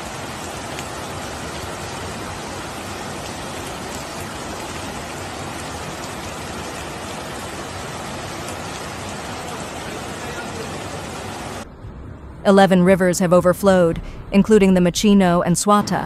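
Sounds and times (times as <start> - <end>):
floodwater rushing: 0.0 - 11.6.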